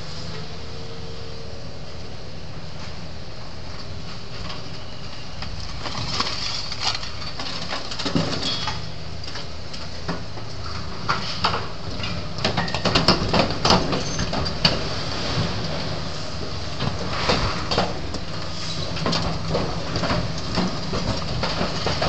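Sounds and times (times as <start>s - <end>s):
excavator engine running: 0.0s - 22.0s
cracks and clanks of breaking material: 5.4s - 15.8s, 16.8s - 22.0s.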